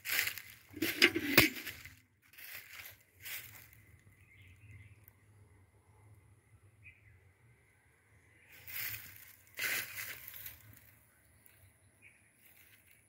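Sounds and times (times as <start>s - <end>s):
dry grass crunching underfoot: 0.0s - 4.3s, 8.5s - 11.1s, 12.4s - 13.0s.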